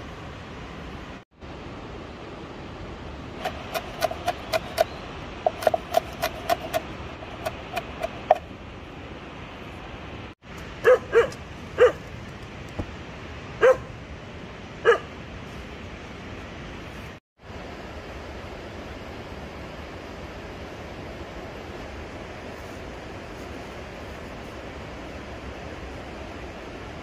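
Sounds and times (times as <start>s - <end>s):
knife chopping on wooden board: 3.4s - 4.9s, 5.5s - 8.4s
dog barking: 10.8s - 12.0s, 13.6s - 13.9s, 14.8s - 15.1s.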